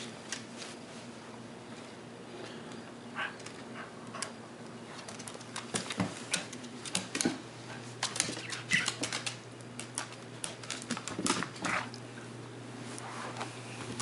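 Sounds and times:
claws clicking on wooden floor: 4.9 - 7.4, 8.0 - 11.9
animals scuffling: 4.9 - 12.0.

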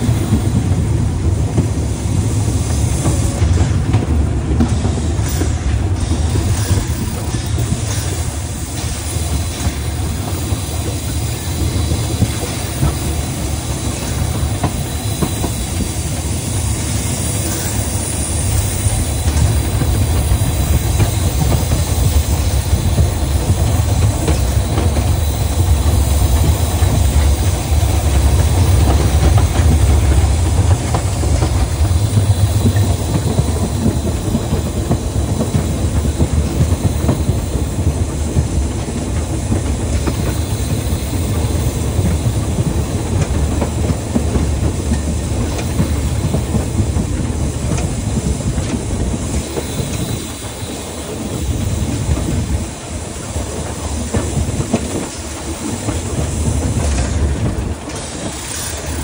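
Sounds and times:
steam train rumble: 0.0 - 59.0
wheels clattering over rail joints: 53.4 - 59.0.

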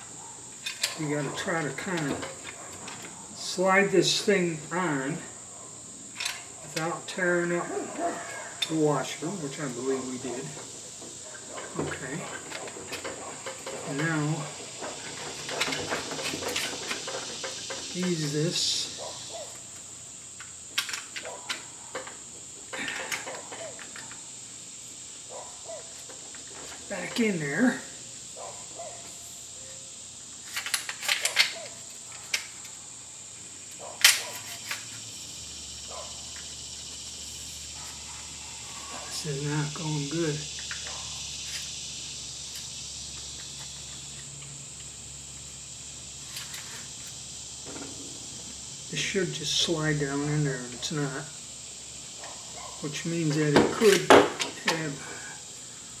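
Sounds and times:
steady high-pitched hiss: 0.0 - 56.0
shotgun barrel clicks and scraping: 30.4 - 32.7.

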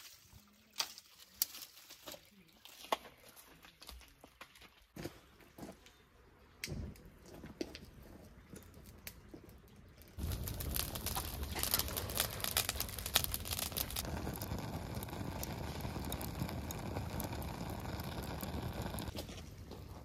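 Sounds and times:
branches burning and crackling: 0.8 - 2.9, 10.0 - 20.0.

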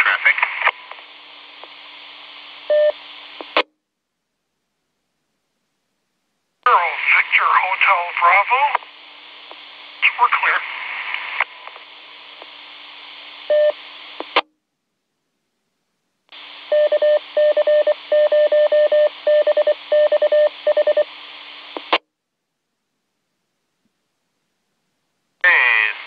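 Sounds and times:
radio squelch hiss: 0.0 - 3.6, 6.7 - 14.4, 20.5 - 22.0, 25.4 - 26.0.

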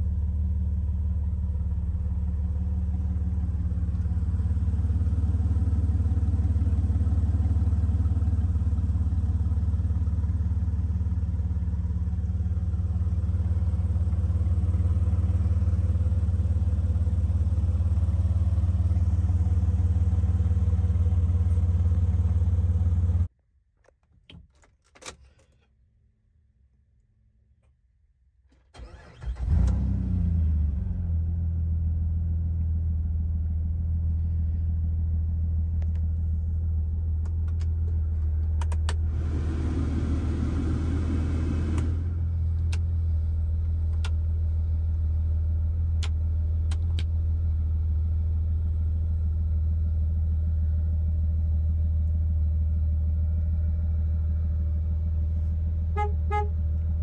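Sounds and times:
car engine idling: 0.0 - 23.3
engine cranking and starting: 28.5 - 29.9.

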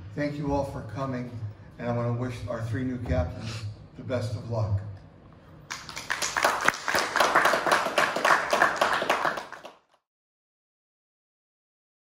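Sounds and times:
people clapping: 5.7 - 10.1.

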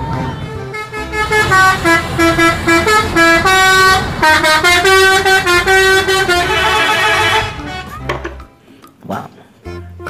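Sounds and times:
musical air horn playing a tune: 0.4 - 7.9.

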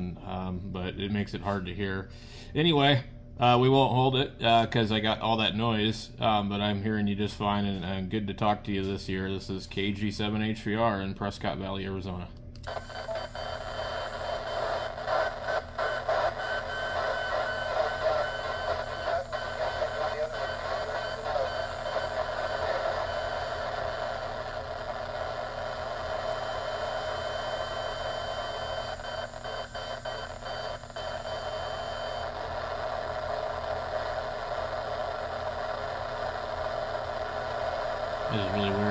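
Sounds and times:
radio crackles: 12.6 - 38.9
radio static hiss: 12.7 - 38.9
steady interfering tones: 12.7 - 38.9.

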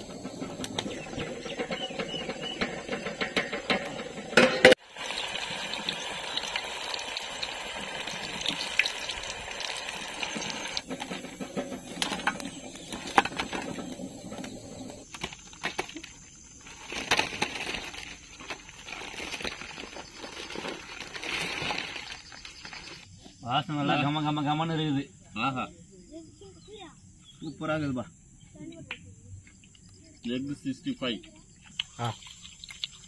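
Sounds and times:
scattered clicks and knocks: 0.0 - 4.8
egg sizzling in deep oil: 2.9 - 15.1, 31.8 - 33.0.

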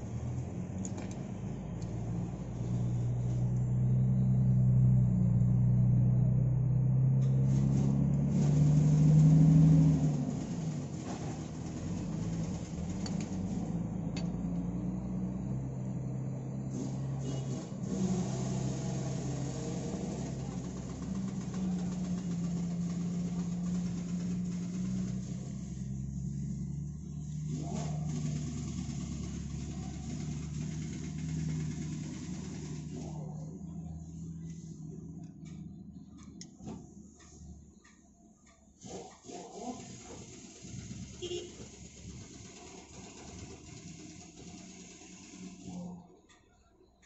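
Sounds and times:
diesel truck engine idling: 0.0 - 47.0.

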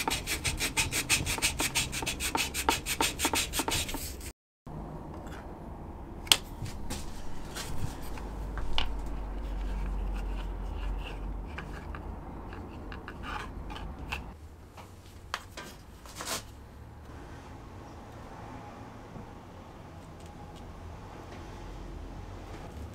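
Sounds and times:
low hum: 4.7 - 14.4
clicks taps and scrapes: 6.3 - 16.4.

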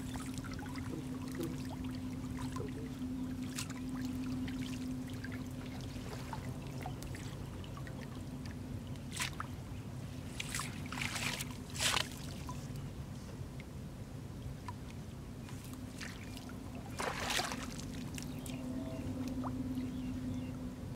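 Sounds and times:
muddy water splashing: 0.0 - 8.2, 9.0 - 9.6, 10.3 - 12.7, 15.9 - 19.5
low hum: 0.0 - 20.9.

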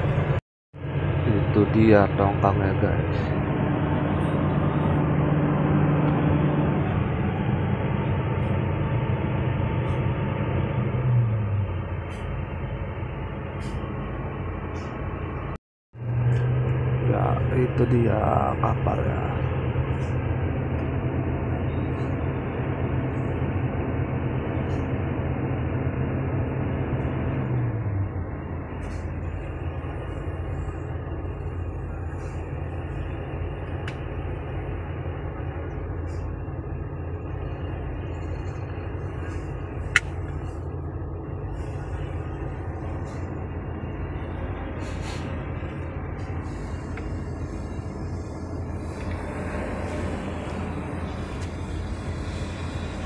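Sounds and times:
low rumble: 0.0 - 53.0.

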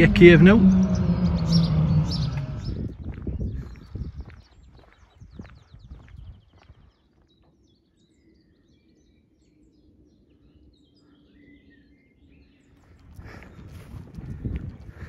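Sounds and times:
songbird chirping and trilling: 0.0 - 15.0
walking footsteps: 1.9 - 7.6, 12.8 - 15.0.

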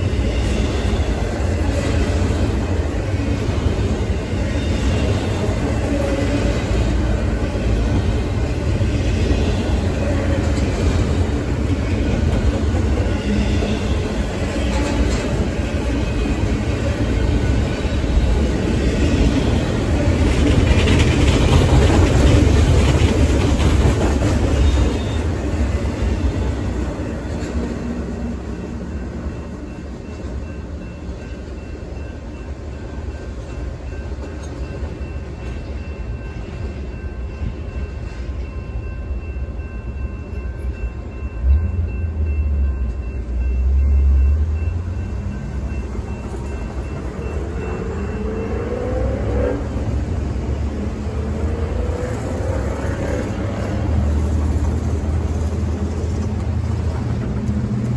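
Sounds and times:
freight train rolling past: 0.0 - 57.9
road vehicles accelerating: 47.4 - 57.9.

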